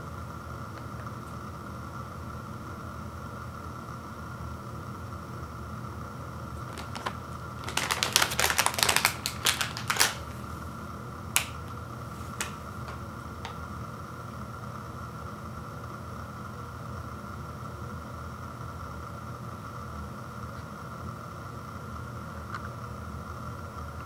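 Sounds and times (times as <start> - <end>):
plastic wrapper crackling: 6.6 - 10.5, 11.4 - 11.7, 12.3 - 13.6.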